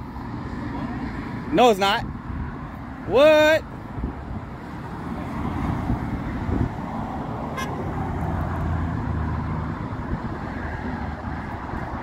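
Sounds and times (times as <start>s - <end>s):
highway traffic rumble: 0.0s - 12.0s
vehicle passing: 0.0s - 12.0s.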